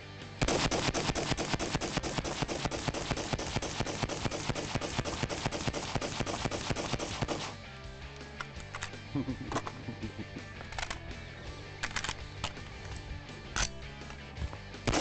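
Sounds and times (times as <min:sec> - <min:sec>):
rapid rifle shots: 0:00.4 - 0:07.7.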